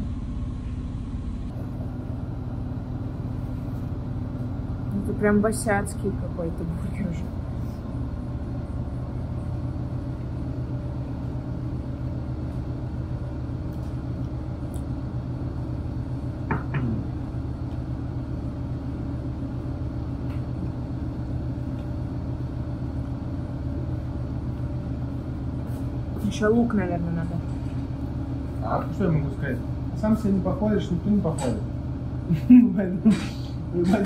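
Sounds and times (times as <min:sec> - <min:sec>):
motor rumbling: 0:00.0 - 0:34.0.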